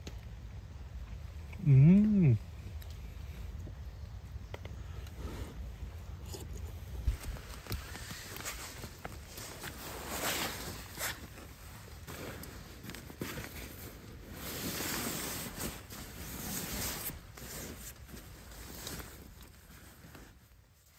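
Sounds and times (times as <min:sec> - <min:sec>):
fabric rustling: 0:06.9 - 0:20.9.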